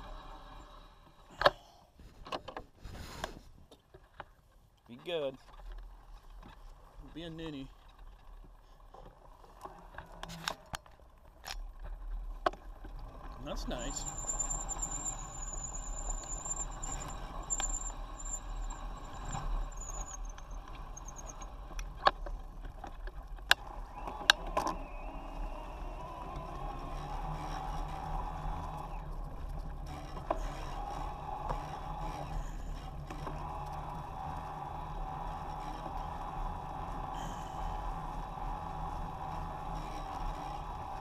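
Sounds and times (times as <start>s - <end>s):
bike tyre rolling on trail: 2.0s - 41.0s
thin high squeal: 13.8s - 21.5s.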